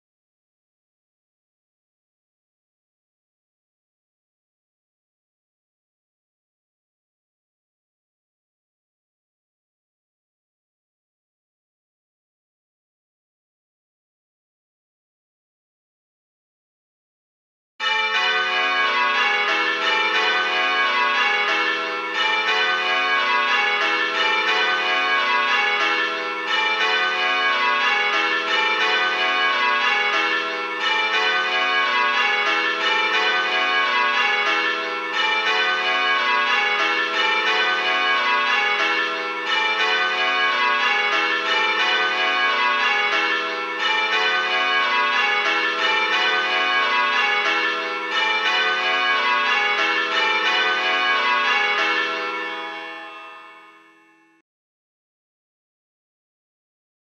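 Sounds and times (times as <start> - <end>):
tower bells change-ringing: 17.8 - 54.4.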